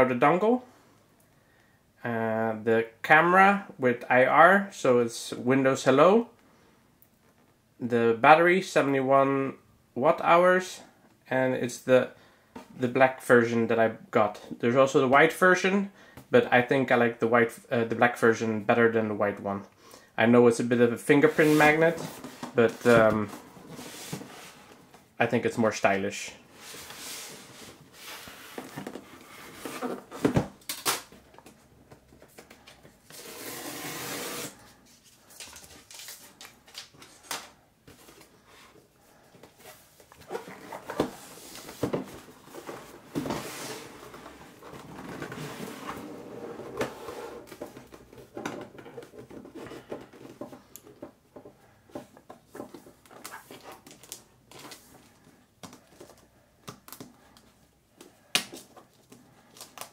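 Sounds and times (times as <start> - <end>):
cardboard scraping hiss: 21.2 - 24.7, 26.6 - 30.2, 33.0 - 35.2, 39.6 - 44.6.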